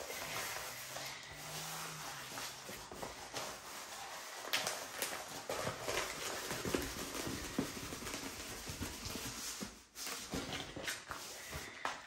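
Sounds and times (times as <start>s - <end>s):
canvas rustling and crinkling: 0.0s - 11.8s.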